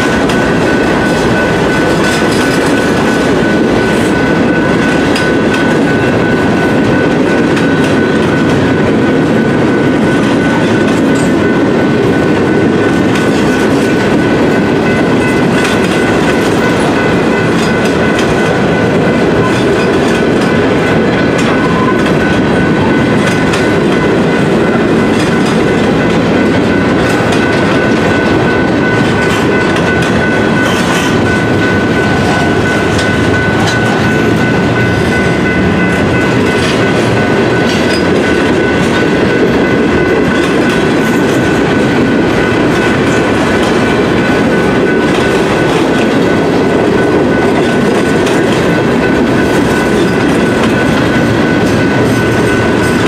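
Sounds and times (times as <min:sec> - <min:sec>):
train wheels rumbling on rails: 0:00.0 - 0:53.0.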